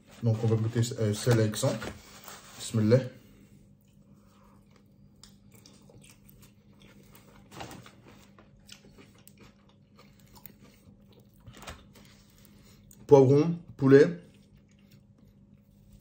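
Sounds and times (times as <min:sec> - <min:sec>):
biting and chewing pizza: 0:03.7 - 0:16.0.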